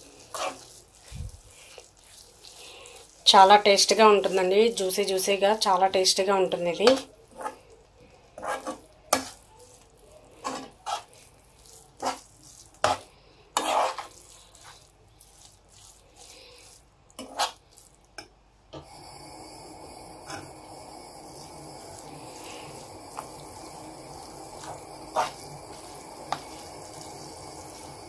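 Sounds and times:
food hissing in a pan: 0:00.0 - 0:04.6, 0:18.8 - 0:28.0
spoon scraping a frying pan: 0:00.0 - 0:05.0, 0:06.7 - 0:18.9, 0:20.2 - 0:20.6, 0:21.3 - 0:28.0.

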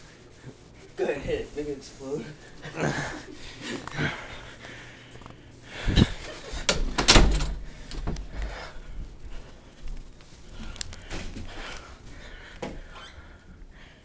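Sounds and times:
door thuds and bangs: 0:06.7 - 0:08.3.

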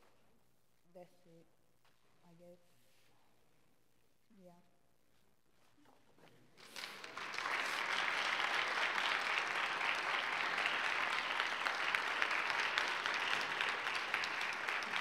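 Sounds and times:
congregation applauding: 0:06.6 - 0:15.0.

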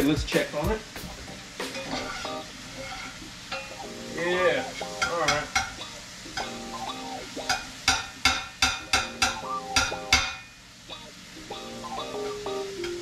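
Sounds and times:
food sizzling: 0:00.0 - 0:13.0
utensil scraping frying pan: 0:01.6 - 0:10.4.

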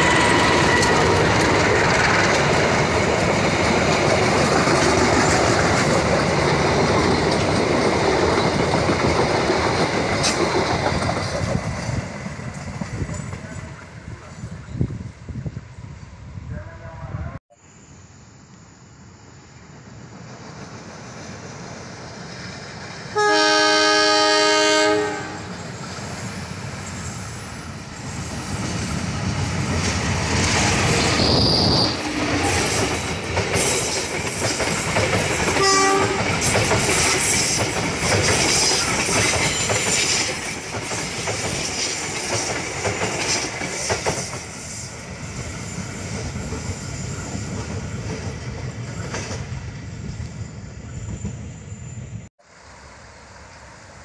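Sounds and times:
train wheels clattering on rails: 0:00.0 - 0:14.0, 0:25.5 - 0:50.3
train engine rumbling: 0:00.0 - 0:54.0
train horn blast: 0:23.1 - 0:25.5, 0:35.6 - 0:36.3.

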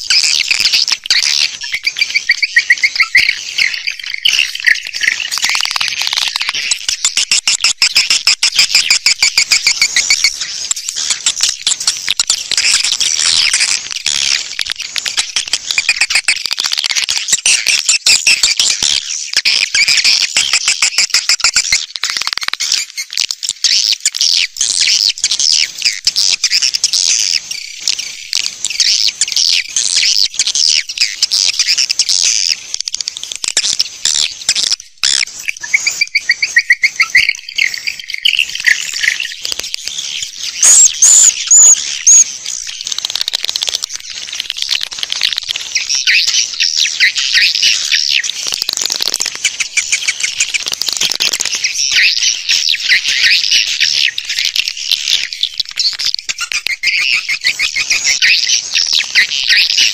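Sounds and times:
swiftlets twittering: 0:34.3 - 0:53.8
sharp high chirps: 0:35.4 - 0:42.7.

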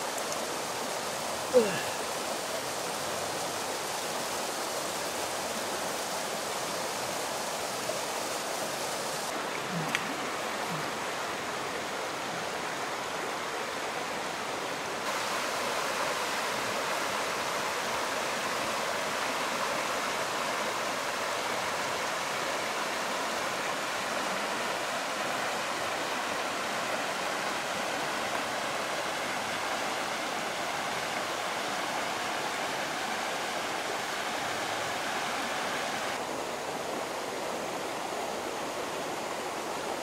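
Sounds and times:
river rushing over rocks: 0:00.0 - 0:40.0.

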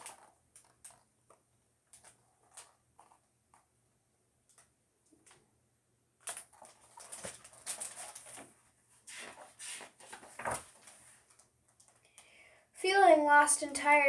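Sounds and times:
book pages rustling and crackling: 0:06.2 - 0:11.5.

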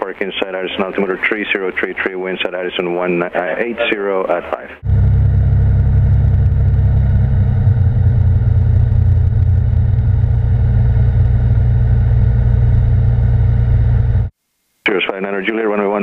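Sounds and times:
propeller plane engine drone: 0:04.8 - 0:14.3.

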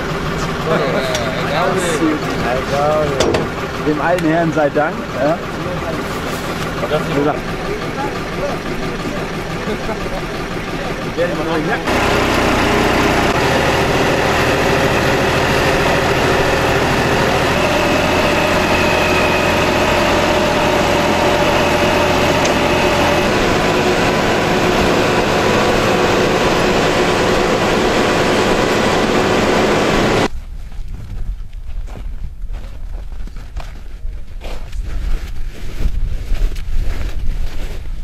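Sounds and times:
vehicle engine driving: 0:00.0 - 0:30.3.

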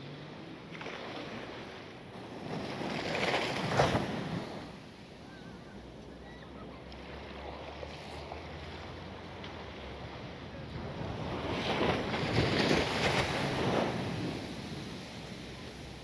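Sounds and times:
ocean waves washing onto beach: 0:00.0 - 0:16.0.

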